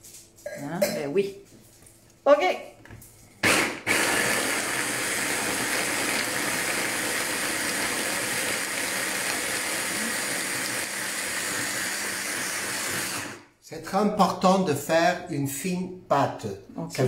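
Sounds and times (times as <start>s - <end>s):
hand blender motor running: 3.4s - 13.5s.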